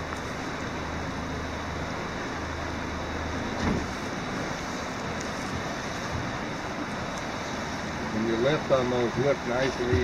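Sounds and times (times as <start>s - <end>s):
low steady hum: 0.0s - 10.0s
river water rushing: 0.0s - 10.0s
wind: 0.0s - 10.0s.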